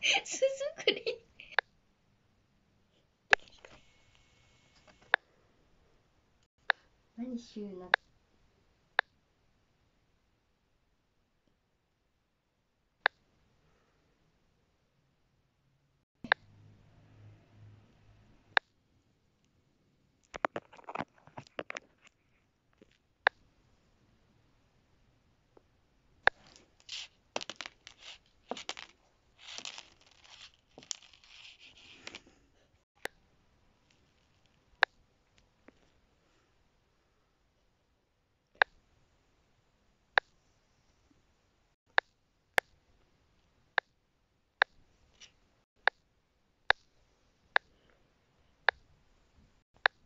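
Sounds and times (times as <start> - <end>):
toy figurine scraping on sheet: 26.4 - 32.3.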